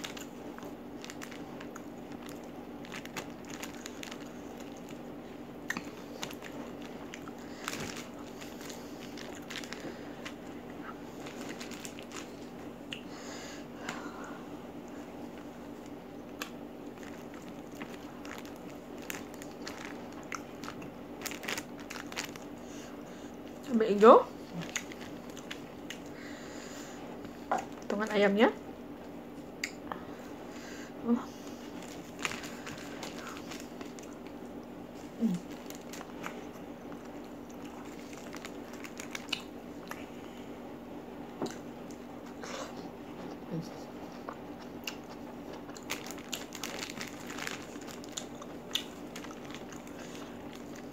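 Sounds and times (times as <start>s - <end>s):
chewing crunchy fried chicken: 0.0s - 13.2s, 14.8s - 28.0s, 31.3s - 40.7s, 41.4s - 50.9s
steady low hum: 0.0s - 50.9s
chewing and mouth smacks: 5.6s - 10.8s, 24.5s - 26.1s, 35.5s - 40.1s, 44.0s - 50.9s.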